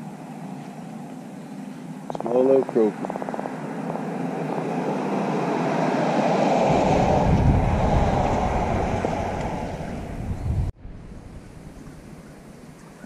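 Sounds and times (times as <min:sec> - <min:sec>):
wind buffeting microphone: 0:02.0 - 0:13.0
loud rushing noise: 0:03.0 - 0:11.0.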